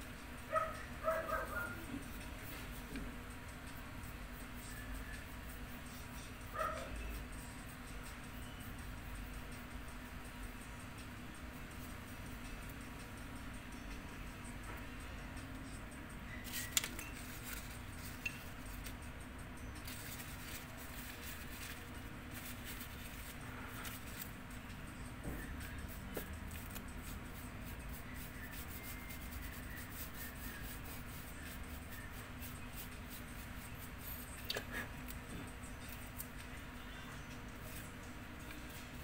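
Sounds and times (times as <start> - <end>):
paintbrush scratching on paper: 19.8 - 24.4, 25.4 - 34.3.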